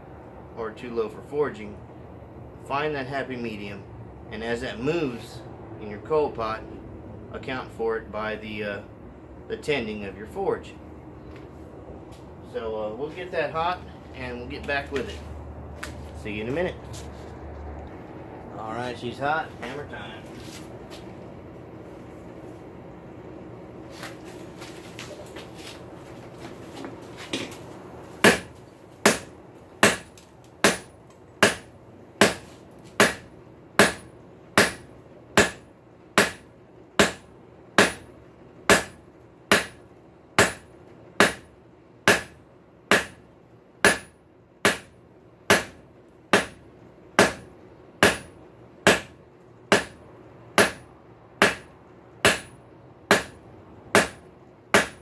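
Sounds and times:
steady hum: 0:00.0 - 0:55.0
hammer striking steel on anvil: 0:28.2 - 0:28.5, 0:29.1 - 0:32.4, 0:33.0 - 0:35.6, 0:36.2 - 0:36.4, 0:37.0 - 0:38.1, 0:38.7 - 0:39.8, 0:40.4 - 0:41.5, 0:42.1 - 0:43.2, 0:43.8 - 0:44.9, 0:45.5 - 0:45.8, 0:46.4 - 0:46.6, 0:47.2 - 0:50.0, 0:50.6 - 0:55.0.

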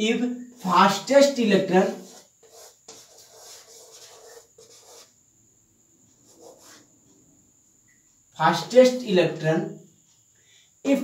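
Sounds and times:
chalk scraping on blackboard: 0:01.9 - 0:05.1, 0:06.3 - 0:06.9.

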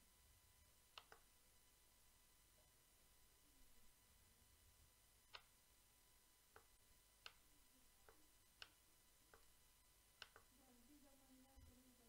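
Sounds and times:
mouse button clicks: 0:00.9 - 0:01.3, 0:05.3 - 0:05.5, 0:10.2 - 0:10.5.

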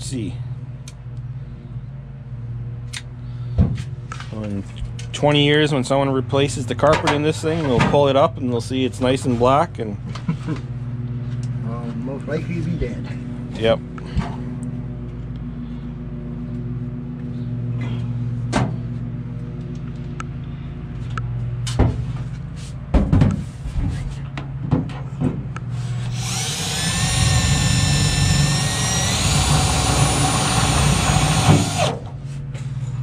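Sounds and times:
low hum: 0:00.0 - 0:06.8, 0:09.9 - 0:22.5, 0:25.4 - 0:33.0
cordless drill whining: 0:25.8 - 0:32.0.

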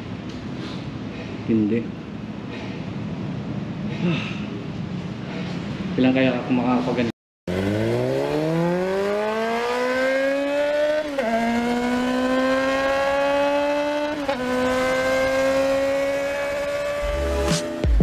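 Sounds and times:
vehicle engine accelerating: 0:07.5 - 0:18.0.

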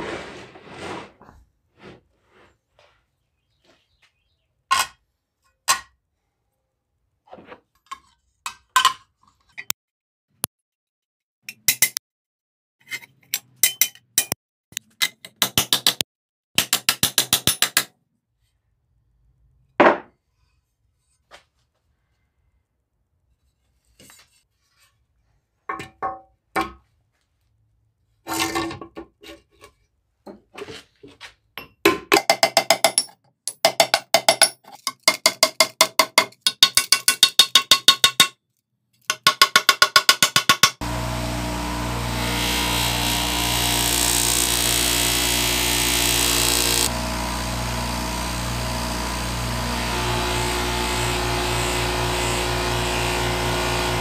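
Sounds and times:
electric power tool motor running: 0:40.8 - 0:54.0
hand tool scraping metal: 0:42.0 - 0:54.0.

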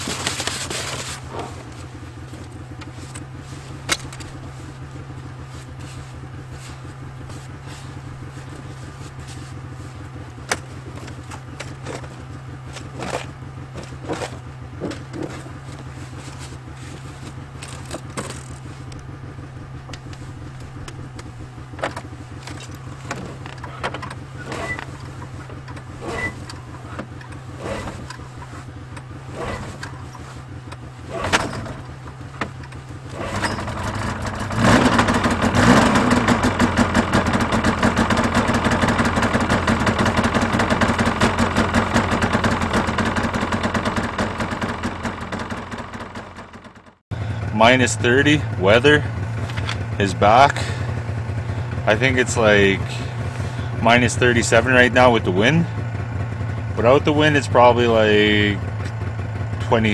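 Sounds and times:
low steady hum: 0:00.0 - 0:37.5
snowmobile engine starting and running: 0:00.0 - 0:59.9.

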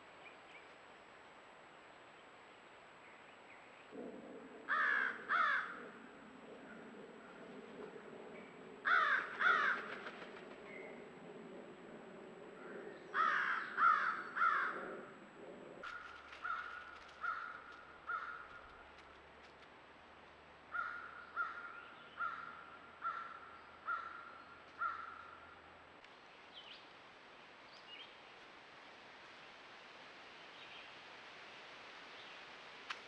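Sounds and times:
crows cawing: 0:04.7 - 0:06.0, 0:08.8 - 0:10.2, 0:13.1 - 0:15.1, 0:15.8 - 0:18.8, 0:20.7 - 0:25.6.

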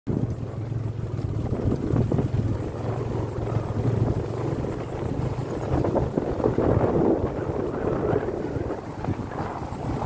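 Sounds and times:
motorcycle engine throbbing: 0:00.1 - 0:10.0.

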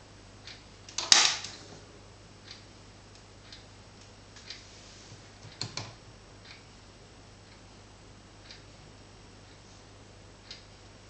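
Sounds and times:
faint irregular clicks: 0:02.4 - 0:04.6, 0:10.4 - 0:11.0.

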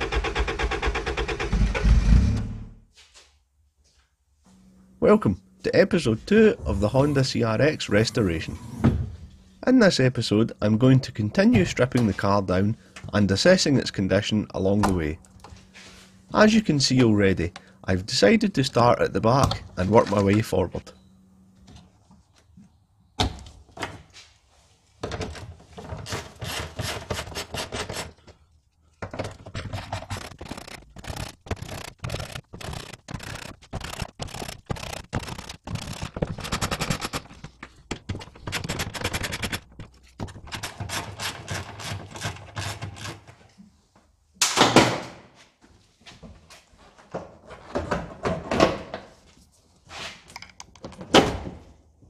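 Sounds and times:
metal and plastic parts rattling: 0:25.0 - 0:43.6.

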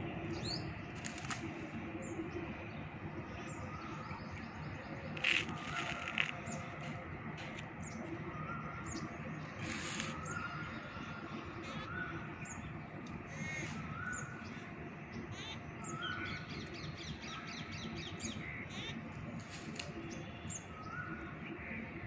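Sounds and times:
steady low outdoor noise: 0:00.0 - 0:22.0
small birds chirping: 0:03.4 - 0:21.5.

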